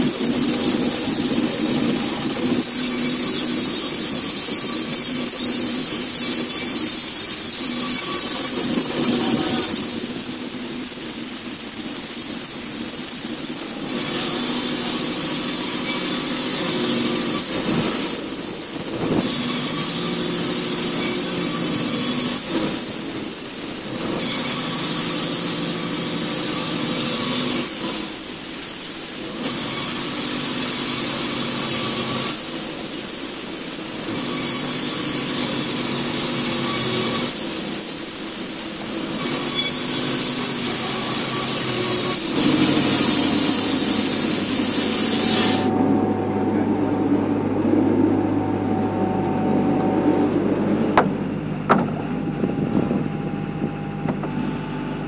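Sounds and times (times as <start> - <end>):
saw blade hissing through wood: 0.0 - 45.7
machine hum: 38.9 - 55.0
sharp knocks: 51.7 - 52.0.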